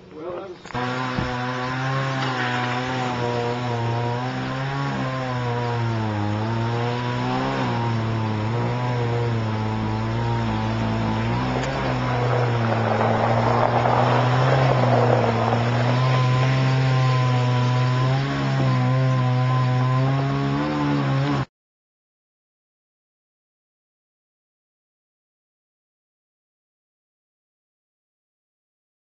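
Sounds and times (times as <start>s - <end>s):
chainsaw engine running: 0.7s - 21.5s.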